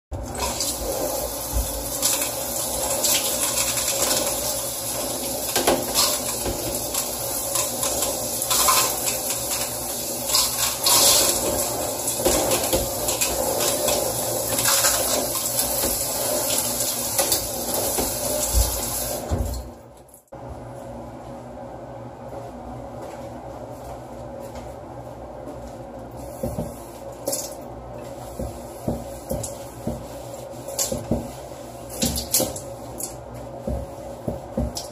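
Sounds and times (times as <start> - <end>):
shower spray hissing: 0.3 - 19.6.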